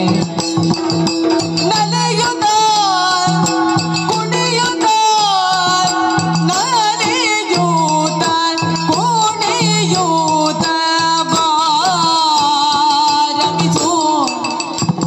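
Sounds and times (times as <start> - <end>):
woman singing with vibrato: 1.4 - 14.8.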